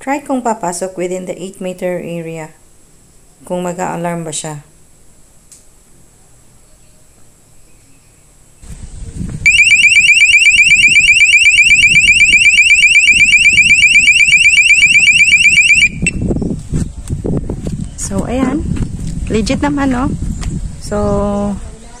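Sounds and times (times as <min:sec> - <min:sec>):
warbling alarm siren: 0:09.5 - 0:16.2.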